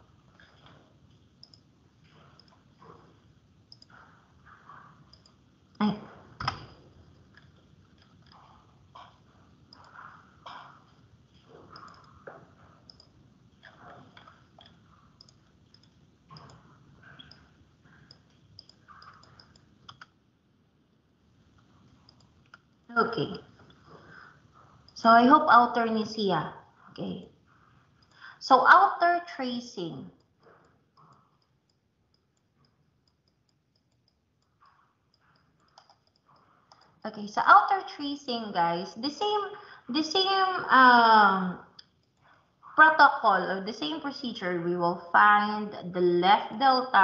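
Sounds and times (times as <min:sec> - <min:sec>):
faint regular ticking: 0:00.0 - 0:20.2, 0:20.8 - 0:28.8, 0:29.4 - 0:40.8, 0:41.7 - 0:44.4
computer mouse clicks: 0:01.4 - 0:03.0, 0:03.7 - 0:05.4, 0:06.4 - 0:20.2, 0:21.6 - 0:22.7, 0:30.5 - 0:37.0.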